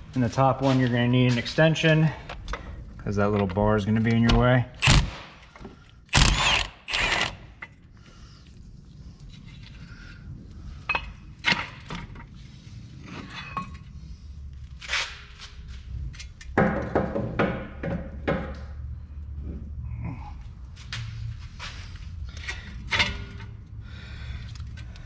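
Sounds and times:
impact wrench bursts: 0:04.8 - 0:05.5, 0:06.1 - 0:07.6
metal clunks and knocks: 0:16.6 - 0:18.7.

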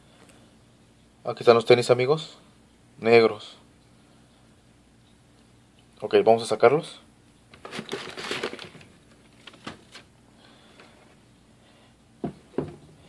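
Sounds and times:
tissue paper rustling: 0:07.6 - 0:10.1
short knocks: 0:12.2 - 0:12.9.

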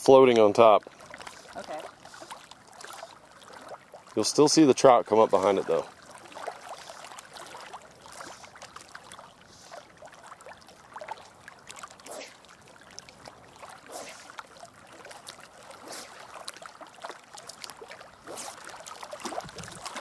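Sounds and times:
small waves lapping on rocks: 0:00.0 - 0:20.0.

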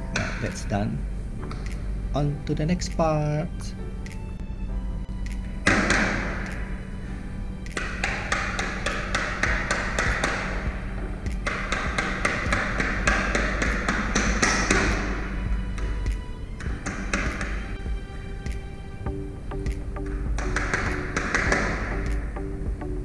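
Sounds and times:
hammer tapping nails: 0:05.6 - 0:06.6, 0:07.7 - 0:10.6, 0:11.3 - 0:15.1, 0:15.8 - 0:17.6, 0:20.3 - 0:22.2.

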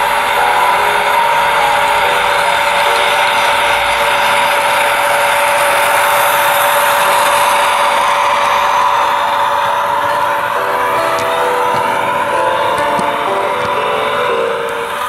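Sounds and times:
model train motor whine: 0:00.0 - 0:15.0
wheels rumbling on track: 0:00.0 - 0:15.0.

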